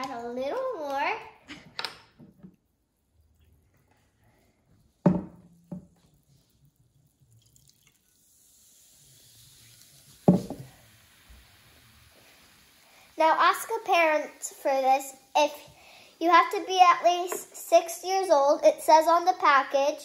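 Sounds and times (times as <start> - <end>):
mixture fizzing: 3.0 - 19.8
liquid pouring into flask: 5.6 - 13.2.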